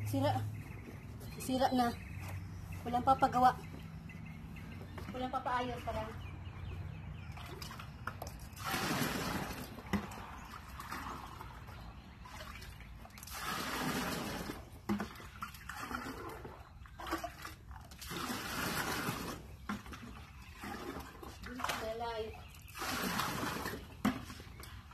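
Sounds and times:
water pouring into plastic chest: 8.4s - 21.9s, 22.6s - 24.6s.

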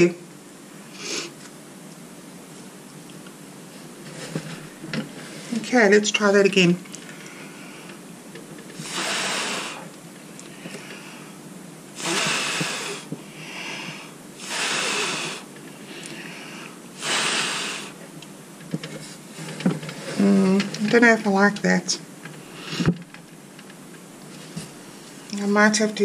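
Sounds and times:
breath puffs blown from mouth: 8.8s - 9.9s, 12.0s - 15.5s, 16.2s - 18.0s.

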